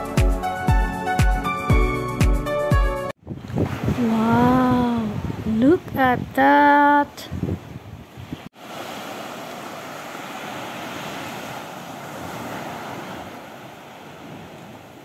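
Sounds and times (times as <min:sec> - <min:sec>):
waves washing on sandy beach: 0:08.2 - 0:15.0.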